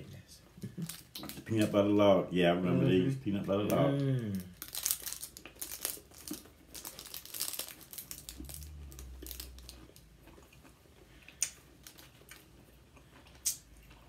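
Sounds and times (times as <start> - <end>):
cellophane wrapper crinkling: 0.6 - 1.8, 3.6 - 10.2, 11.4 - 12.5
quiet chewing: 4.3 - 14.0.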